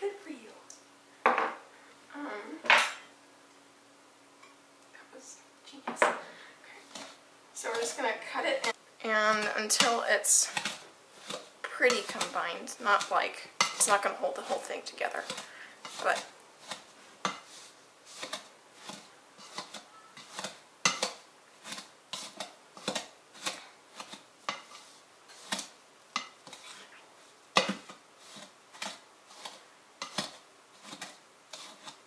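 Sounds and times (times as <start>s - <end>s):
pastry blender scraping a bowl: 6.9s - 26.9s, 27.5s - 32.0s.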